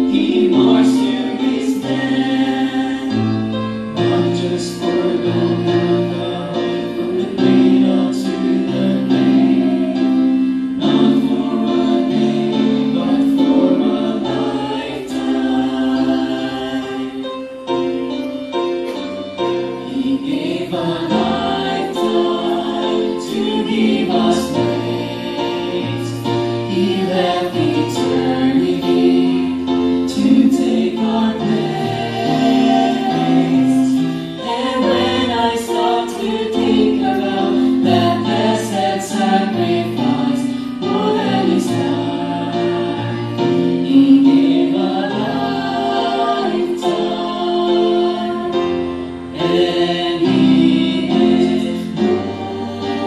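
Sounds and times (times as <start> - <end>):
vocal group singing a hymn: 0.0 - 53.0.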